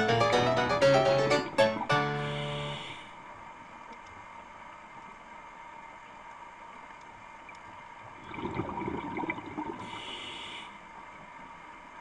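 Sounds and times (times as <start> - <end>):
steady hum: 0.0 - 3.9
regulator breath hiss: 2.1 - 3.2, 9.8 - 10.8
exhaled bubbles gurgling underwater: 8.1 - 10.0.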